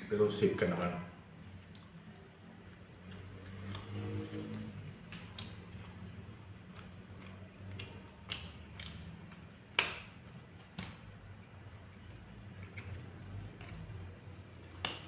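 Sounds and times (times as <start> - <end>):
fingers clicking and tapping plate: 6.7 - 10.2.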